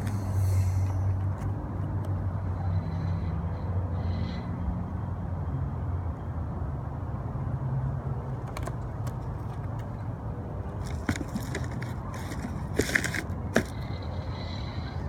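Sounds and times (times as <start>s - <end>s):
books rustling and crackling: 10.7s - 14.0s.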